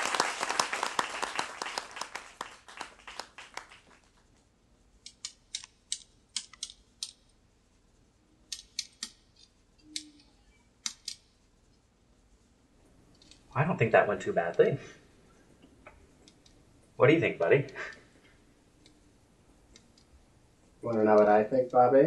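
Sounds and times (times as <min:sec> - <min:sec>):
audience applause: 0:00.0 - 0:04.1.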